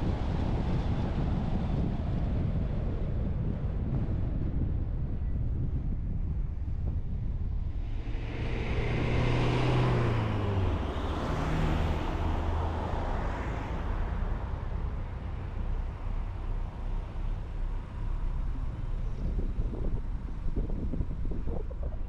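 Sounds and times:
car road and wind noise: 0.0 - 22.0
vehicle passing: 7.6 - 18.4.

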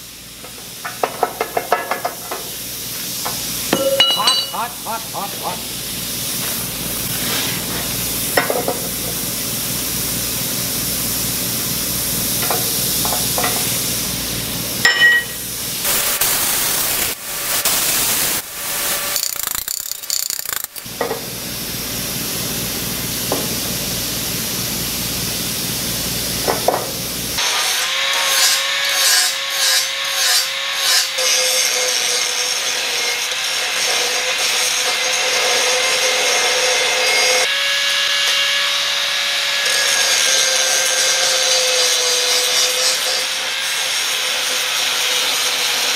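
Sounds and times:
angle grinder grinding steel: 3.8 - 5.6, 16.9 - 20.9, 27.4 - 45.9.

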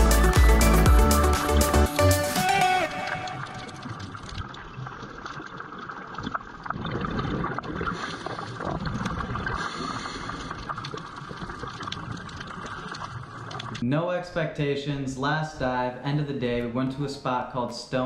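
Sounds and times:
underwater water noise: 2.6 - 13.8
water gurgling: 2.6 - 13.9
faint underwater clicks: 7.8 - 13.8.

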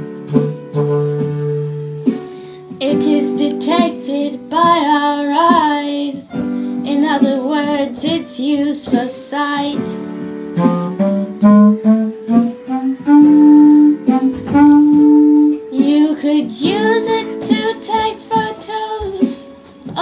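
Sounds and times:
woodwind playing held notes: 0.0 - 2.1, 10.5 - 16.1
girls singing blues song: 2.8 - 10.0, 15.7 - 20.0.

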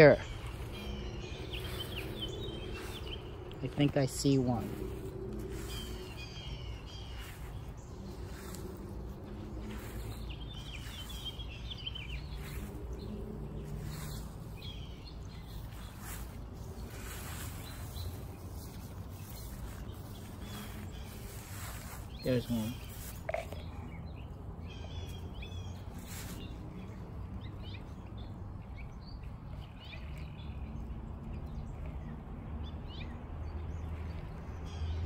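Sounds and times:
steady low rumble: 0.0 - 32.1
birds chirping: 0.0 - 35.0
soft rustles: 0.3 - 23.8, 25.7 - 27.3.

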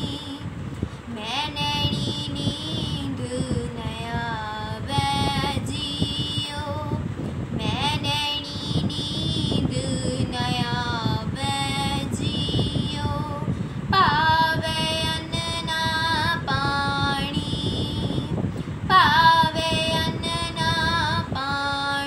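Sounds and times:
girl singing a hymn: 0.0 - 22.0
steady low rumble: 0.0 - 22.0.

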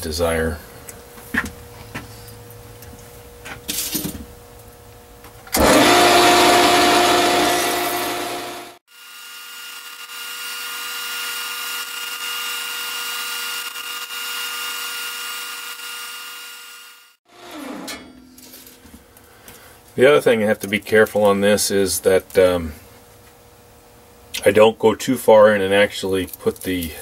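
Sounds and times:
harsh cutting noise: 5.5 - 17.9
metal lathe whining: 5.5 - 18.0.

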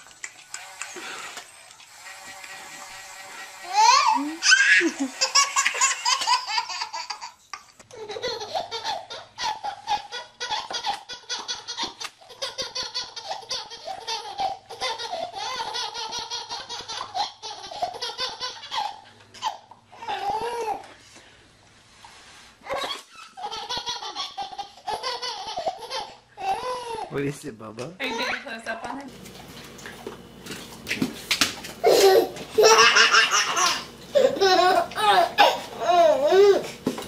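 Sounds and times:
baby laughing: 3.7 - 20.9, 22.6 - 27.1, 31.8 - 36.9.

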